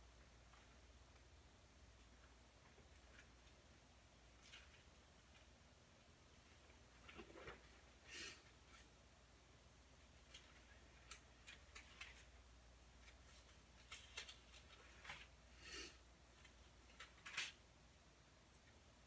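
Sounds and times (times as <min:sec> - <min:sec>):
paper pages rustling: 0:10.2 - 0:12.4, 0:13.0 - 0:15.4.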